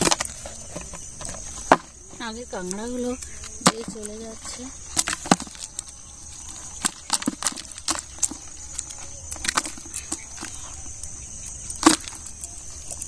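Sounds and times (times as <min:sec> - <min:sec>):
high insect buzz: 0:00.0 - 0:13.0
snail shells clicking together: 0:04.9 - 0:13.0.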